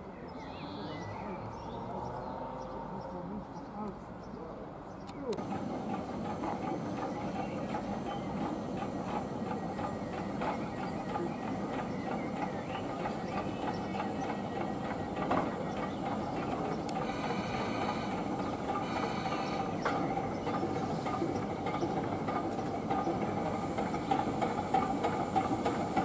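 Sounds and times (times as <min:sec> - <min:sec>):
train rumbling on rails: 0:00.0 - 0:26.0
wheels clicking: 0:05.2 - 0:26.0.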